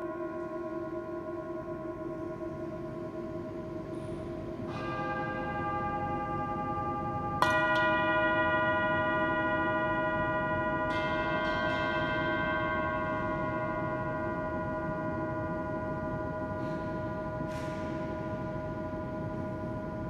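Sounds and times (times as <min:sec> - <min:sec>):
metal bowl ringing with echo: 0:00.0 - 0:20.0.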